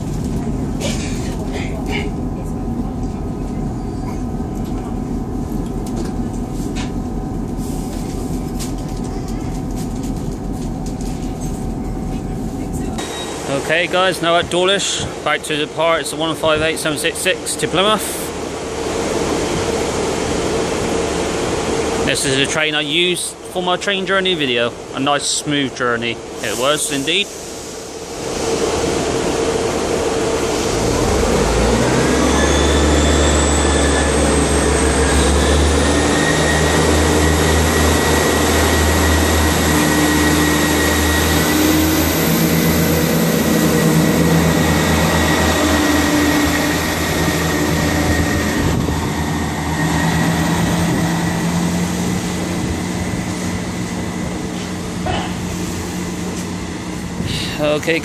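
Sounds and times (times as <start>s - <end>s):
diesel engine rumble: 0.0s - 58.0s
rising high whine: 12.7s - 14.8s, 27.9s - 57.8s.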